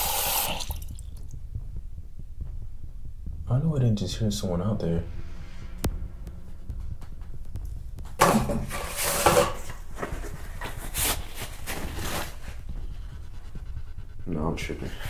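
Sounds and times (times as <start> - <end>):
low steady hum: 0.0 - 15.0
paper towel rustling on microphone: 8.7 - 13.8.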